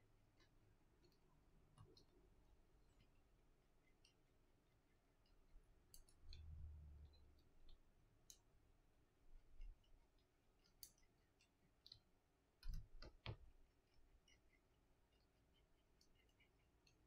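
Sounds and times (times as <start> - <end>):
small tools clicking and tapping: 5.2 - 8.5, 10.6 - 15.2.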